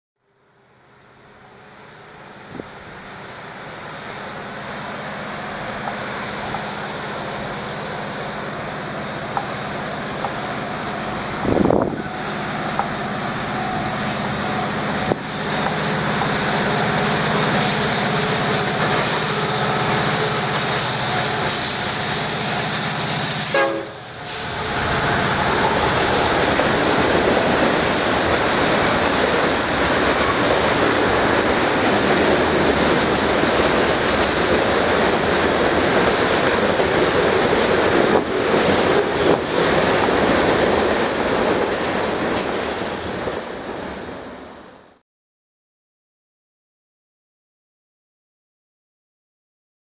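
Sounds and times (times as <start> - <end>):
locomotive engine drone: 0.3 - 44.4
train cars rumbling and rattling: 1.1 - 45.0
train horn blast: 23.2 - 25.1.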